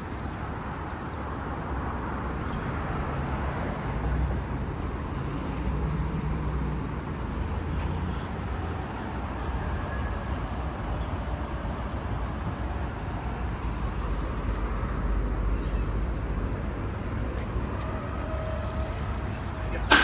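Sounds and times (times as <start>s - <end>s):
passing motor vehicles: 0.0s - 20.0s
brief high-pitched squeaks: 5.1s - 6.2s, 7.3s - 8.0s.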